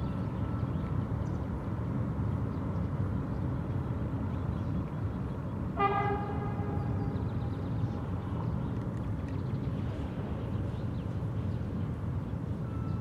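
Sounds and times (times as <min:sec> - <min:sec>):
trains rumbling on bridge: 0:00.0 - 0:13.0
train horn: 0:05.8 - 0:07.1.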